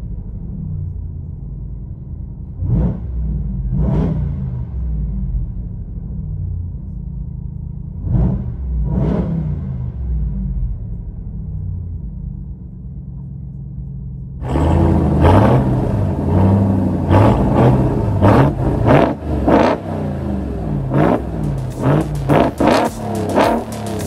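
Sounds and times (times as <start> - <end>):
truck engine revving: 2.6 - 5.3, 8.0 - 10.4, 14.4 - 24.0.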